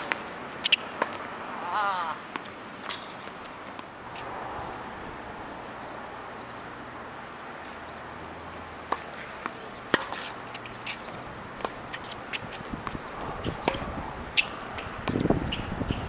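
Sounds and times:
ball bouncing on hard court: 11.6s - 16.0s.

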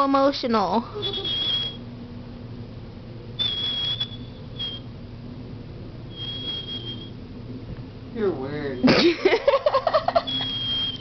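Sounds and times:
dog whining: 0.9s - 1.8s, 3.4s - 4.9s, 6.1s - 7.2s, 10.1s - 11.0s.

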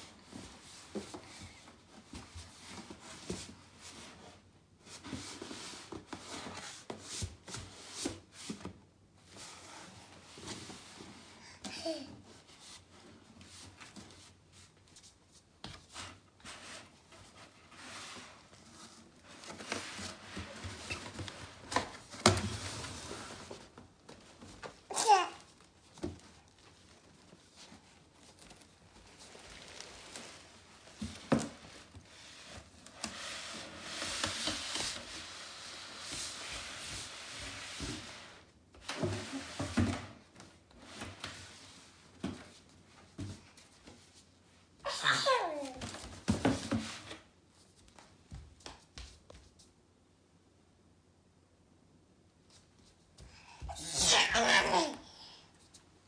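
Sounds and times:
box scraping on wooden floor: 15.9s - 23.7s
baby babbling and squealing: 24.9s - 25.4s, 44.9s - 45.8s, 53.6s - 55.3s.

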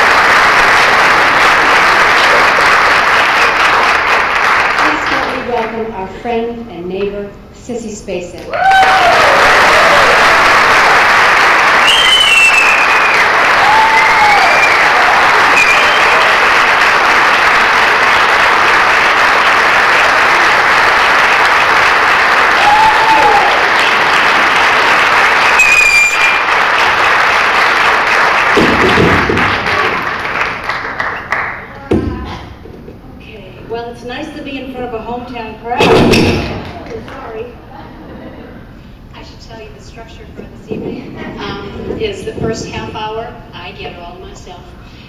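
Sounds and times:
audience applauding: 0.0s - 5.4s, 8.6s - 31.8s
scattered cheers: 8.5s - 10.9s, 11.7s - 19.1s, 22.3s - 26.6s.

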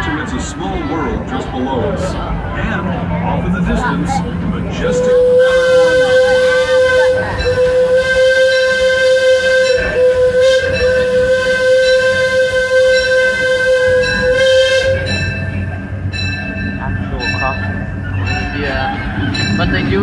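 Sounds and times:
steam locomotive whistle: 4.8s - 15.8s.

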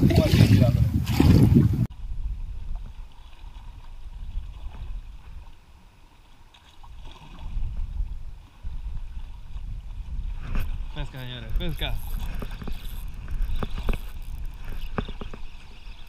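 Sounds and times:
wind rumbling on microphone: 0.0s - 5.8s, 6.8s - 16.0s.

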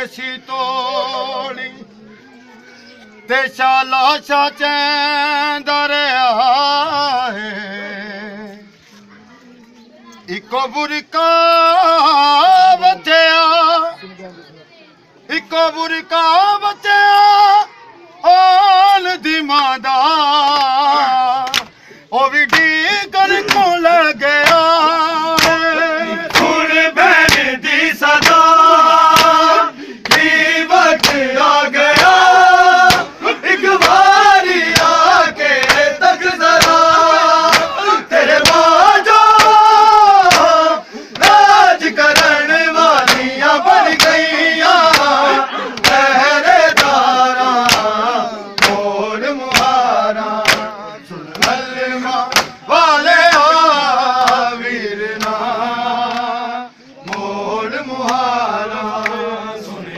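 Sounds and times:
man chanting a lament: 15.3s - 59.9s
hands slapping chests: 21.4s - 21.8s, 22.4s - 23.8s, 24.4s - 24.7s, 25.3s - 49.8s, 50.4s - 52.6s, 54.2s - 54.5s, 55.1s - 56.3s, 57.0s - 57.4s, 58.0s - 58.3s, 58.9s - 59.2s.

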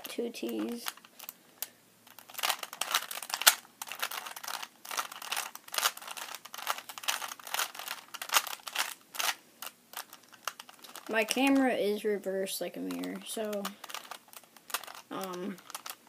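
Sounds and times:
puzzle cube clicking and rattling: 0.0s - 1.4s, 2.0s - 11.7s, 12.8s - 16.0s.

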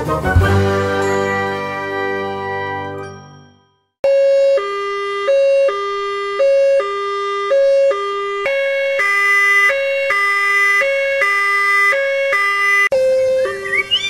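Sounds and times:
two-tone fire truck siren: 4.0s - 14.0s.

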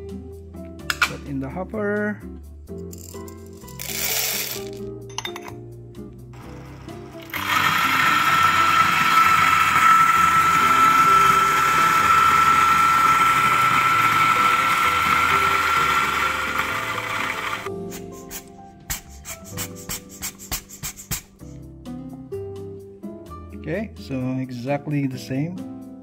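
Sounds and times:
coffee grinder whining: 3.7s - 4.8s, 6.4s - 17.7s.

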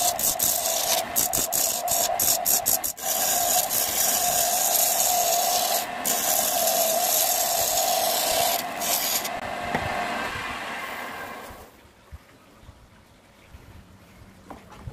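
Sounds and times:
chisel scraping wood on lathe: 0.0s - 9.4s
lathe humming: 0.0s - 9.6s.

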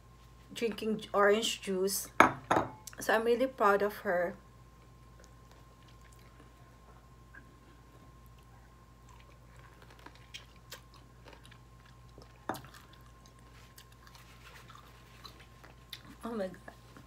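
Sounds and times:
faint steady hum: 0.0s - 17.0s
person chewing: 5.2s - 6.7s, 7.3s - 16.8s.

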